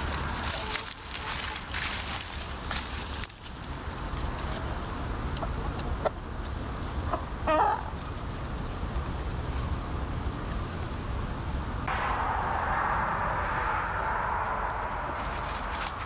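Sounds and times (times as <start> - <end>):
hens clucking: 7.0 - 8.0
steady low rumble: 11.8 - 16.0.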